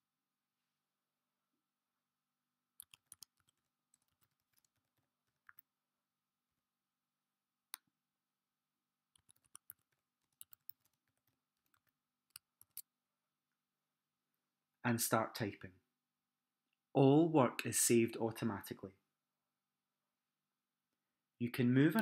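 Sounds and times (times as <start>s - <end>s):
faint keyboard typing: 2.8s - 5.8s, 9.1s - 12.9s.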